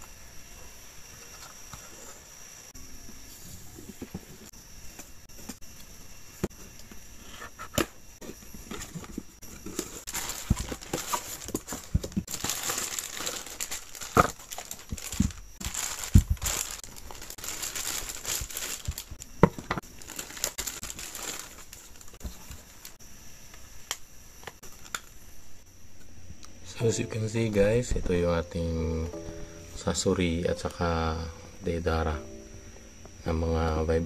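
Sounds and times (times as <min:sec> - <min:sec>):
plastic packaging crinkling: 0:09.6 - 0:23.0.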